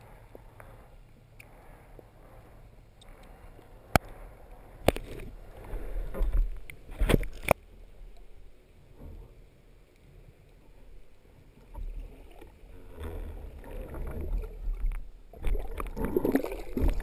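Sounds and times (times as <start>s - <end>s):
water rushing: 10.8s - 17.0s
underwater knocks and clicks: 11.6s - 17.0s.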